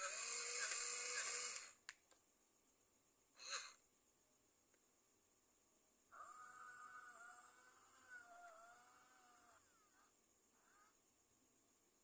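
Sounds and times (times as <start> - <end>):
small electric motor whirring: 0.0 - 1.8, 3.4 - 3.8.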